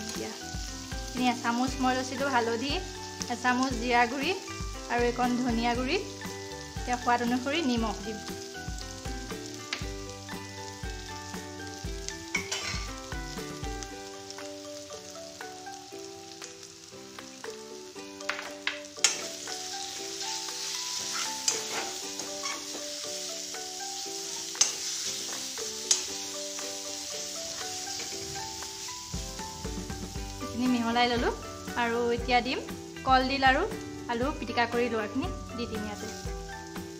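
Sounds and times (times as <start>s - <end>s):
onion mixture sizzling in a pan: 0.0s - 36.9s
soft background music: 0.0s - 36.9s
metal spatula scraping a pan: 19.0s - 23.0s, 24.1s - 26.6s.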